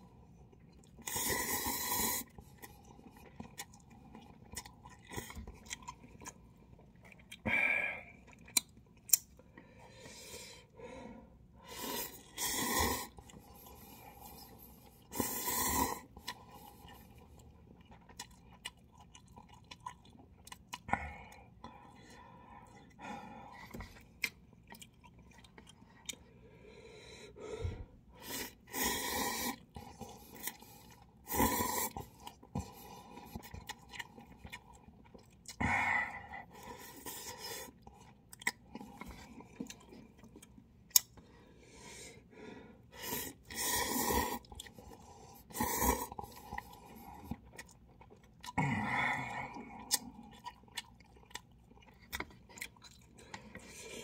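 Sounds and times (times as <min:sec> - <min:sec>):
chewing: 0:00.2 - 0:07.5, 0:08.1 - 0:10.3, 0:11.8 - 0:26.4, 0:29.4 - 0:35.6, 0:36.4 - 0:41.3, 0:43.0 - 0:48.7, 0:49.4 - 0:54.0
noodle slurping: 0:11.8 - 0:17.1.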